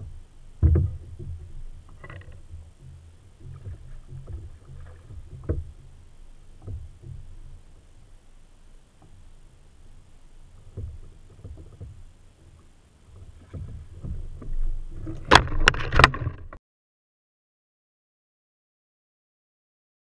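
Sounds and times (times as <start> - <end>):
gear knocking in plastic kayak: 0.0 - 7.9, 10.5 - 16.6
landing net knocking: 0.6 - 5.9.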